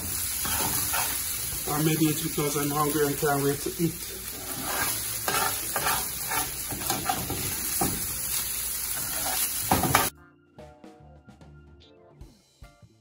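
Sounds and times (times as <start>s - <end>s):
fish sizzling in oil: 0.0s - 10.1s
spatula scraping a pan: 0.2s - 1.5s, 4.1s - 7.9s, 8.8s - 10.1s.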